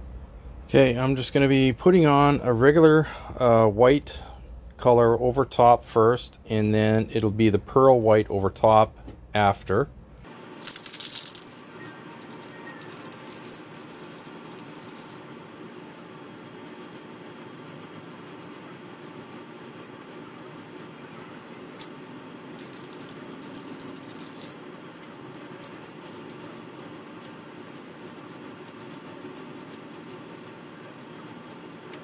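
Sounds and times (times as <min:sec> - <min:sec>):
low room hum: 0:00.0 - 0:32.0
faint scratching and clicking: 0:11.2 - 0:15.2, 0:22.6 - 0:24.6, 0:25.3 - 0:32.0.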